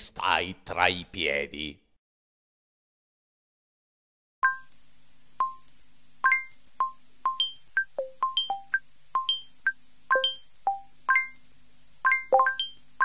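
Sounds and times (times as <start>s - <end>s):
high bell-like tune: 5.5s - 6.8s, 7.4s - 13.0s.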